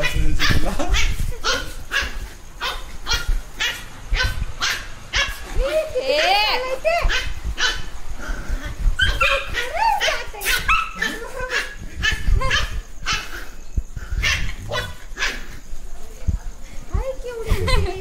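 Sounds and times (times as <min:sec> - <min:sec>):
puppy barking and yipping: 0:00.0 - 0:07.9, 0:09.0 - 0:13.6, 0:14.2 - 0:15.6.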